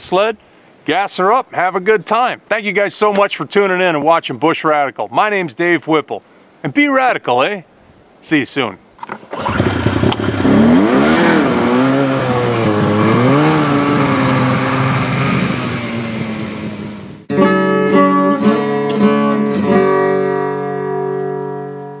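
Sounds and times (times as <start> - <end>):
snowmobile engine revving: 9.2 - 17.3
acoustic guitar music: 17.2 - 22.0.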